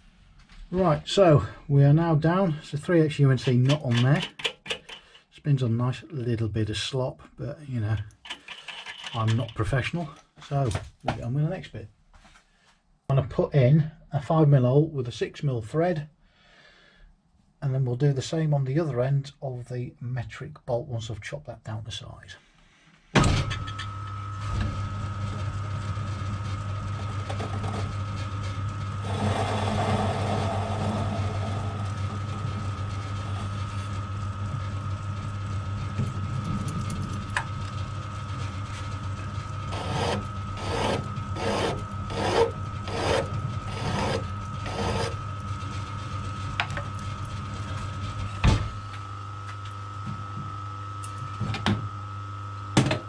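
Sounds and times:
lathe motor hum and whine: 0:23.6 - 0:53.0.

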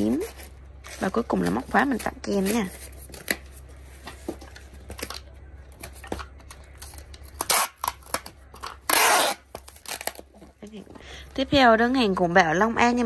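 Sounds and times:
packing tape ripping: 0:06.8 - 0:10.2.

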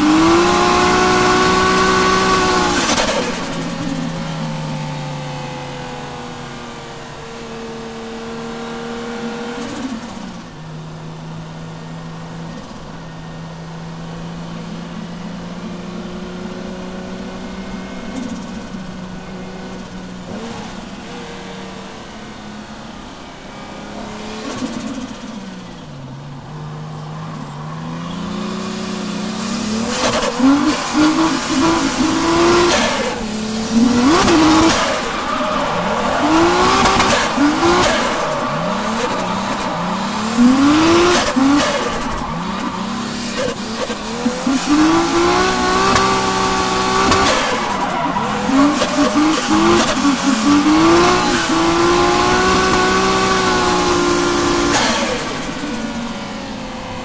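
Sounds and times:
car engine revving: 0:00.0 - 0:57.0
tyre squeal: 0:26.5 - 0:56.1.

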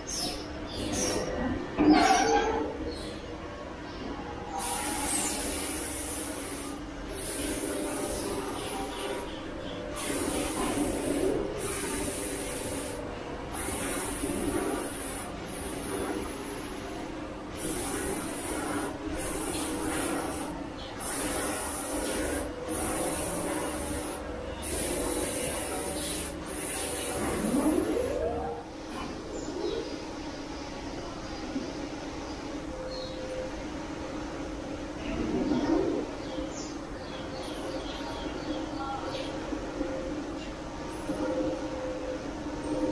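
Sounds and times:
machine hum: 0:03.9 - 0:38.1
high machine hiss: 0:04.6 - 0:31.2.

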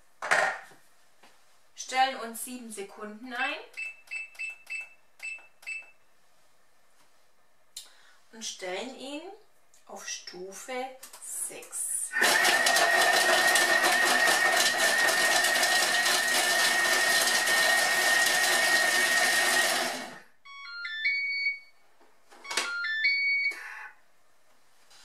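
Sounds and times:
food processor blade whining: 0:12.2 - 0:20.2
machine beeps: 0:20.4 - 0:21.8, 0:22.4 - 0:23.9.

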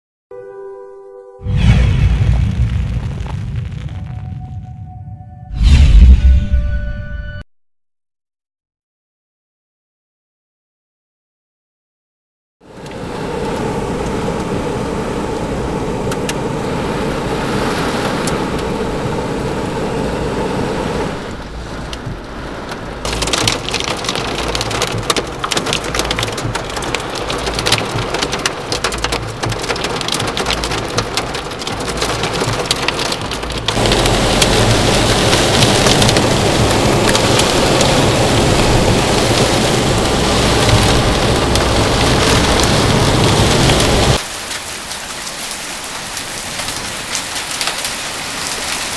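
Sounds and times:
heavy rain downpour: 0:12.6 - 0:48.9
hail drumming on car roof: 0:21.5 - 0:48.9.

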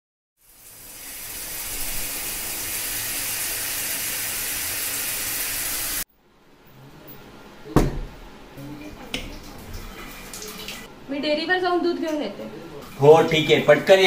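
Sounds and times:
running water: 0:00.4 - 0:06.0, 0:08.6 - 0:10.9, 0:12.6 - 0:14.0.

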